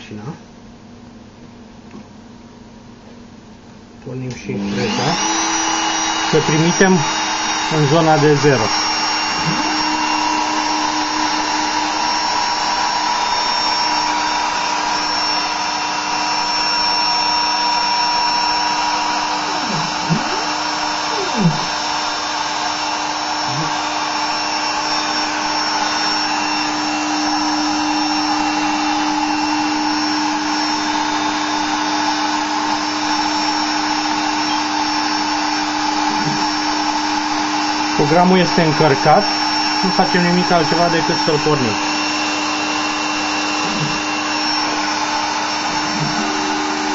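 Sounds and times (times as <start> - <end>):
spindle motor whining: 4.3 - 46.9
stepper motor sweeps: 4.6 - 32.0, 32.6 - 46.9.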